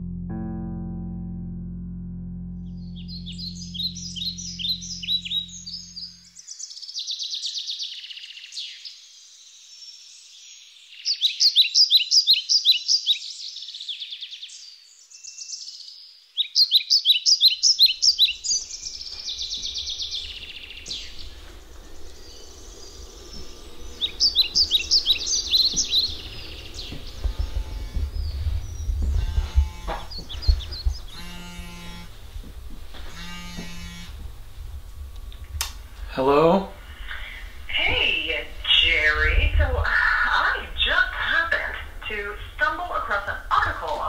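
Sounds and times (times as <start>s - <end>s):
low rumble: 0.0s - 6.4s, 18.3s - 44.0s
songbirds chirping: 2.8s - 44.0s.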